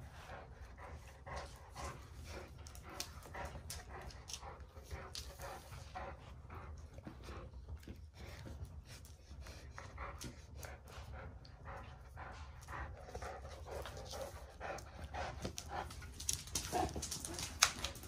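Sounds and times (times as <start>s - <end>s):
dogs panting: 0.0s - 18.0s
dogs scuffling: 15.3s - 18.0s.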